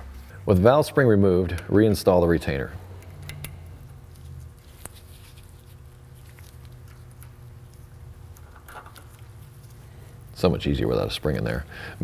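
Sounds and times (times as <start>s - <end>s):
low steady hum: 0.0s - 12.0s
metal parts clicking and scraping: 8.4s - 9.3s.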